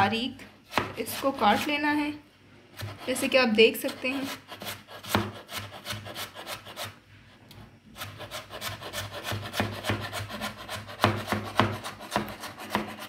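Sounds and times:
knife chopping on wooden board: 0.7 - 1.7, 2.8 - 3.3, 3.9 - 6.8, 8.0 - 13.0.

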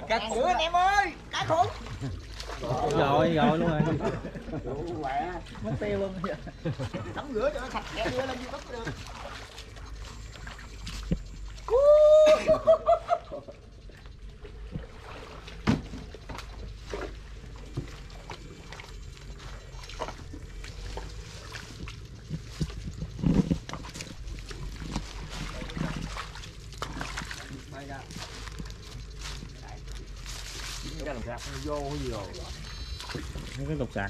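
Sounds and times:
splashes in shallow water: 1.2 - 34.0
pulsing pitched call: 27.7 - 34.0.

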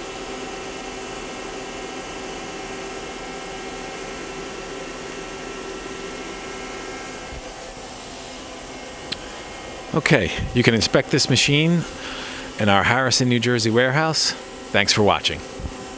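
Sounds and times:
lathe whirring hum and hiss: 0.0 - 15.9
steady tones: 7.1 - 15.9.

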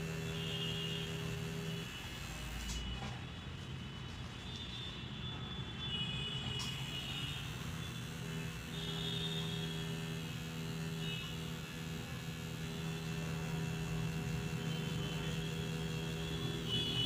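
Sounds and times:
tattoo machine buzzing: 0.0 - 3.0, 6.6 - 17.0.

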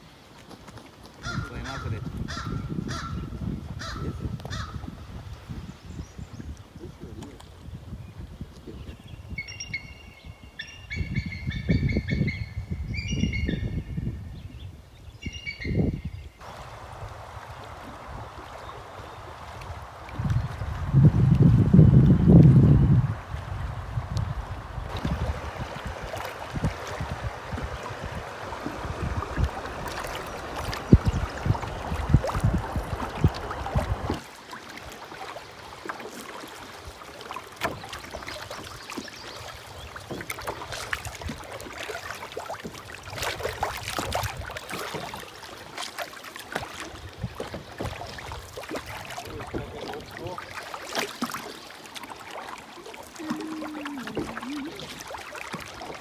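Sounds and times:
paddle stroke splashes: 0.0 - 2.2, 16.4 - 56.0
river water lapping and splashing: 0.0 - 13.8, 14.7 - 56.0
wind rumble on microphone: 1.2 - 34.2, 39.1 - 45.2, 46.9 - 50.4.

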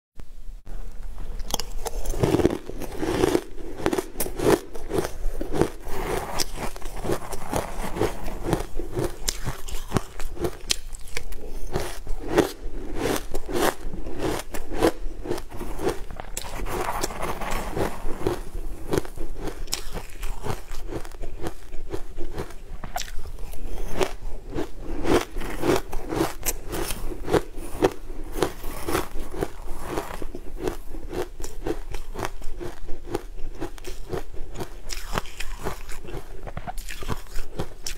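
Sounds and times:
crushed ice being crunched: 1.5 - 21.7.

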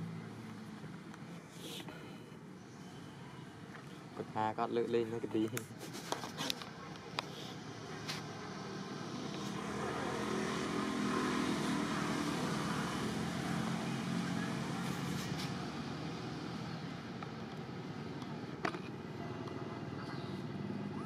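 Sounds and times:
vehicle passing by: 7.6 - 17.1.

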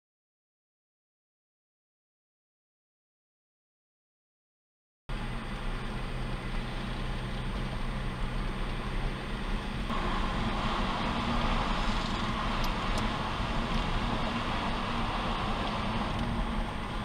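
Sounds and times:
car engine hum: 5.1 - 17.0
tyre and road noise: 5.1 - 17.0.

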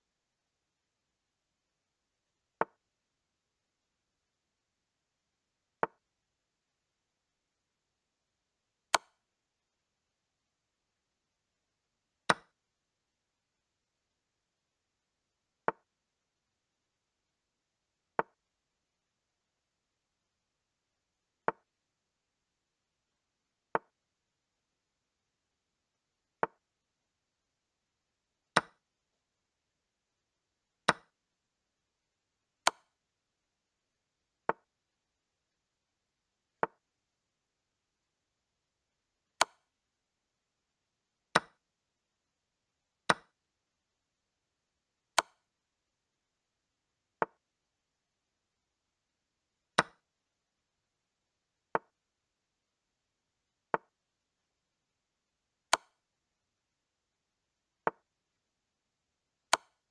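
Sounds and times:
wooden chess piece clicks: 12.3 - 12.5, 28.6 - 28.8, 30.9 - 31.1, 32.7 - 32.9, 39.4 - 39.6, 41.4 - 41.6, 43.1 - 43.3, 45.2 - 45.4, 49.8 - 50.0, 55.7 - 56.0, 59.5 - 59.8.

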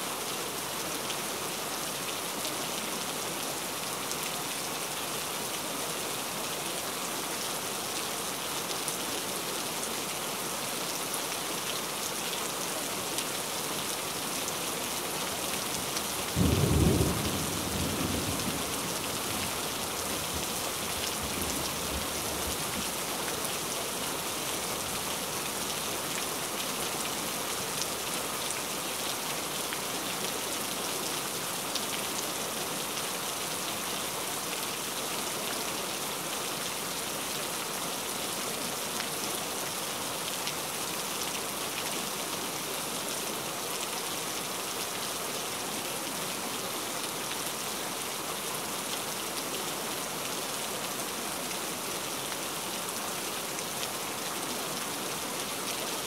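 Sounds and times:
steady rain hiss: 0.0 - 56.0
low rumble of thunder: 16.4 - 18.8.

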